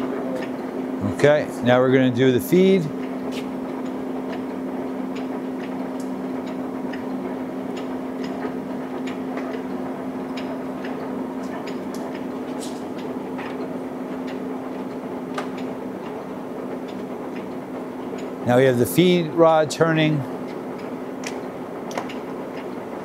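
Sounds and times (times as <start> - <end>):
lathe gearbox humming: 0.0 - 23.0
gear clicks and ticks: 20.0 - 23.0.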